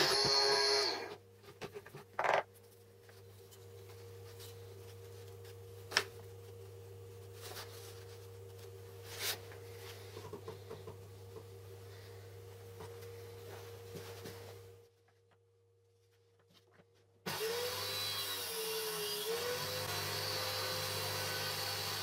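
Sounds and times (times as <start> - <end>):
steady low hum: 1.0 - 16.5.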